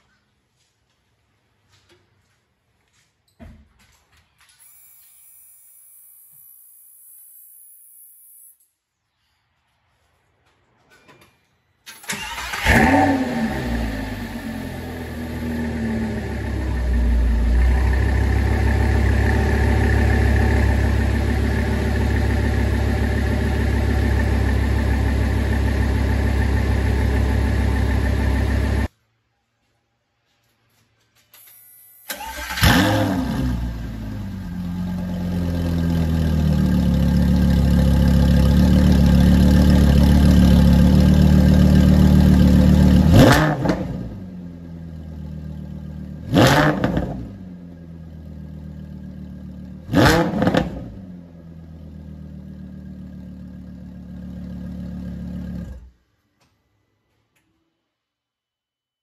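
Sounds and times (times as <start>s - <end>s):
sports car engine revving: 40.8s - 44.3s, 46.1s - 47.6s, 49.8s - 51.1s.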